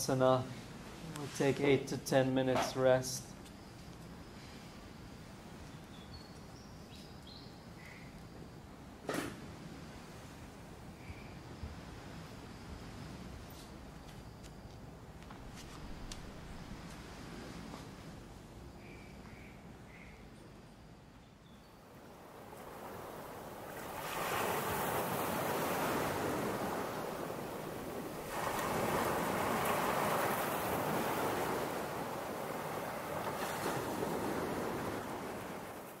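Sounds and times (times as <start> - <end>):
waves washing onto stony beach: 21.9 - 36.0.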